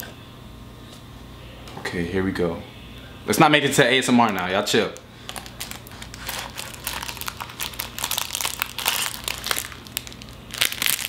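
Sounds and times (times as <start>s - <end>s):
plastic wrapping crinkling: 4.2s - 11.0s.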